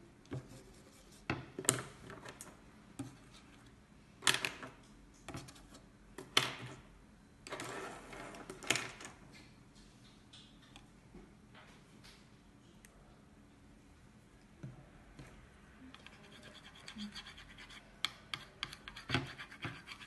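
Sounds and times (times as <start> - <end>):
pen scratching on board: 16.0 - 20.0.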